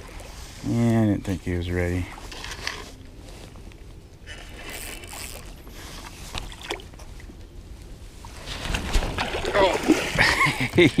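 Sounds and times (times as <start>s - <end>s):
water lapping against kayak hull: 4.2s - 7.4s, 8.0s - 11.0s.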